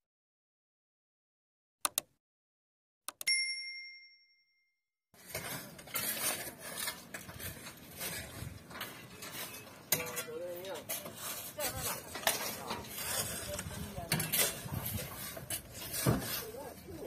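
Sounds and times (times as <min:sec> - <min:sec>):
mouse clicks: 0:01.9 - 0:02.1
bell ding: 0:03.2 - 0:04.8
shovel scraping sand and stones: 0:05.2 - 0:17.0.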